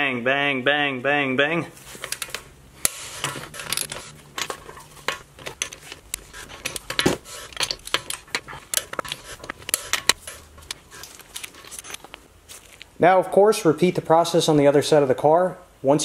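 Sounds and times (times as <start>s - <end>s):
torque wrench clicking on lug nuts: 2.2s - 10.8s.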